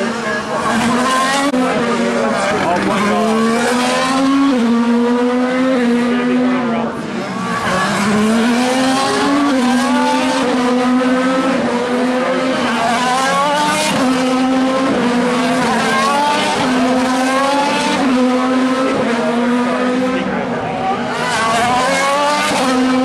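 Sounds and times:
race car engines accelerating: 0:00.0 - 0:23.0.

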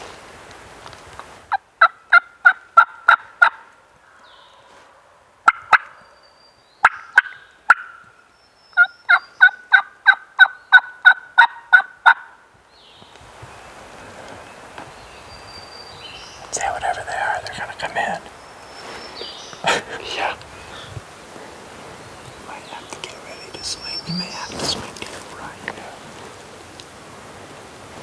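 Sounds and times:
turkey yelping: 0:01.5 - 0:03.6, 0:05.4 - 0:06.0, 0:06.8 - 0:08.0, 0:08.8 - 0:12.4.

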